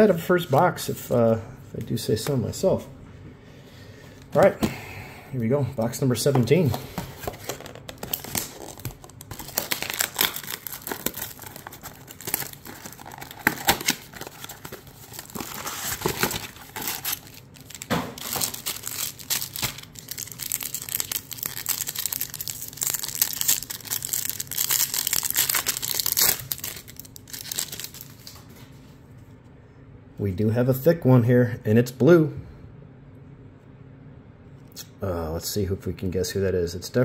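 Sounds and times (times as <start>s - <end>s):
foil packs crinkling and tearing: 6.5s - 28.4s
cardboard box tearing open: 7.2s - 19.0s.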